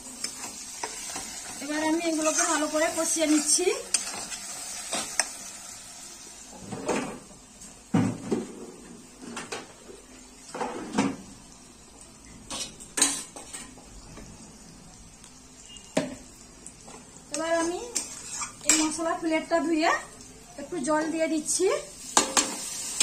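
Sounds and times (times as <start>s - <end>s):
food frying in oil: 0.0s - 23.0s
spatula scraping a cooking pan: 0.2s - 5.4s, 17.5s - 18.9s.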